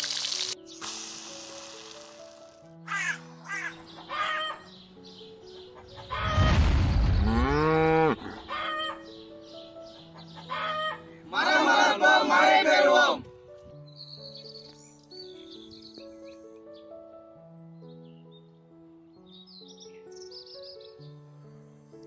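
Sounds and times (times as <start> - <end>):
cow mooing: 7.2 - 8.4
men shouting together: 11.3 - 13.2.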